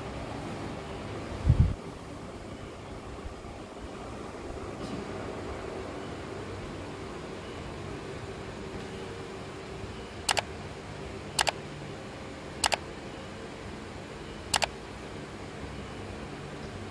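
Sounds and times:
double mouse-click sound effects: 14.5s - 14.7s.

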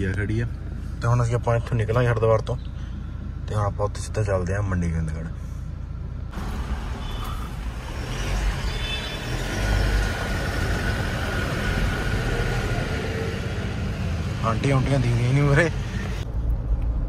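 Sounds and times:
car engine rumble: 0.0s - 17.0s
street traffic: 0.0s - 17.0s.

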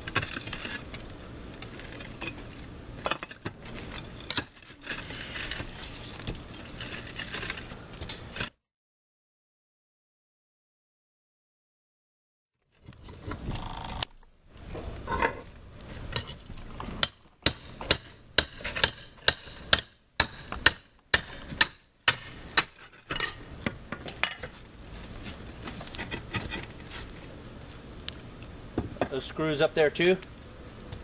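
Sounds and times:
tools scraping on tiles: 3.8s - 7.7s.

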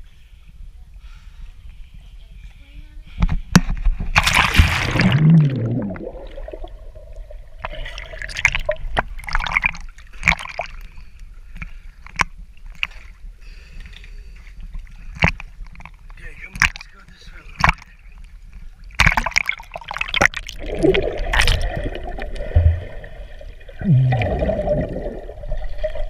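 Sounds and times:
water sloshing and splashing: 3.7s - 11.0s, 13.8s - 26.0s
big splash into water: 4.1s - 6.7s.

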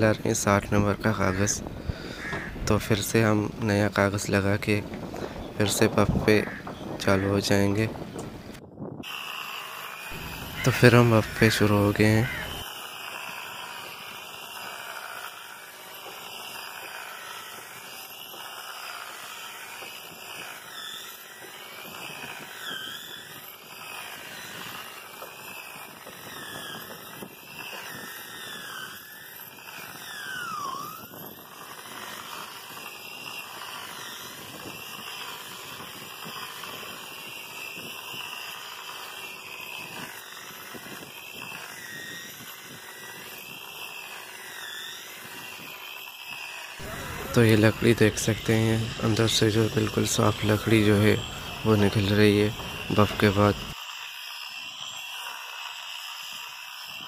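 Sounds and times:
electric polisher sanding wood: 0.0s - 57.0s
gliding squeaks: 10.0s - 12.8s, 27.8s - 35.2s, 39.9s - 53.8s.

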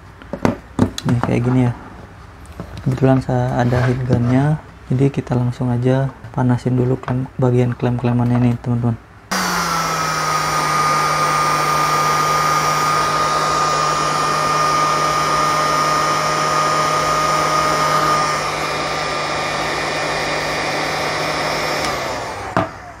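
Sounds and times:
heat gun running: 9.3s - 23.0s.

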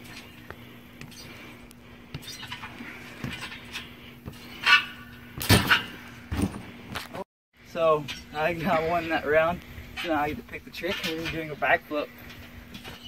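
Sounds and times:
trampoline springs knocking and creaking: 0.0s - 7.2s, 7.9s - 13.0s
sharp thuds on trampoline: 2.1s - 6.7s
short squeak: 2.2s - 2.7s.

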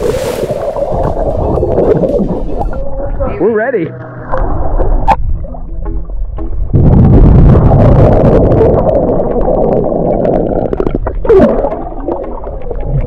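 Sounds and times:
muffled underwater water rush: 0.0s - 13.0s
bubble clicks and pops: 6.7s - 13.0s.

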